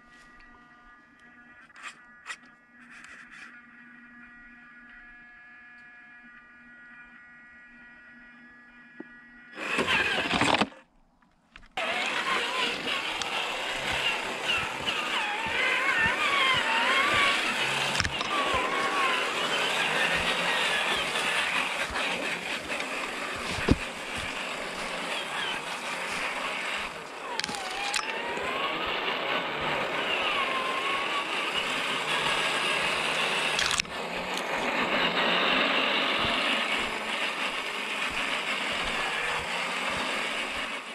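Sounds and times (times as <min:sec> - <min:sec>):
toy truck motor whining: 0:00.0 - 0:10.9, 0:11.6 - 0:40.9
wheels rolling: 0:09.0 - 0:40.9.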